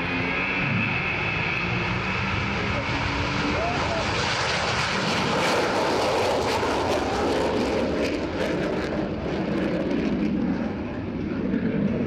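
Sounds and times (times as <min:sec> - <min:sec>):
jet engine roar: 0:00.0 - 0:12.0.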